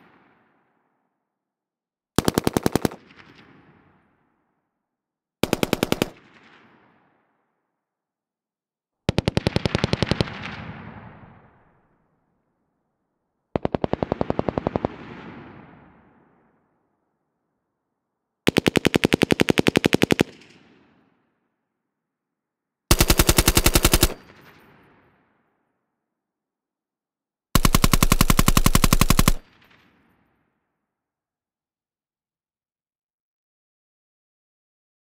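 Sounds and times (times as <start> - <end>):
rifle automatic bursts: 2.2 - 3.0, 5.4 - 6.2, 22.9 - 24.4, 27.6 - 29.5
gunfire echo: 22.9 - 25.0, 27.6 - 29.9.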